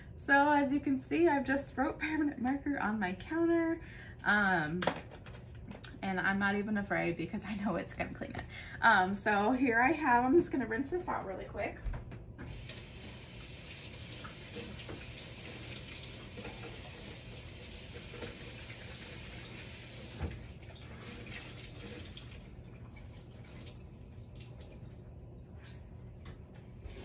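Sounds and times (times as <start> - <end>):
faucet running water into sink: 12.4 - 25.8.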